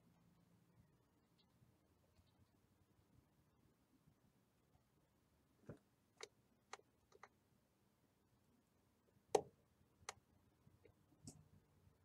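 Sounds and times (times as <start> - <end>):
computer mouse clicking: 6.2 - 7.4.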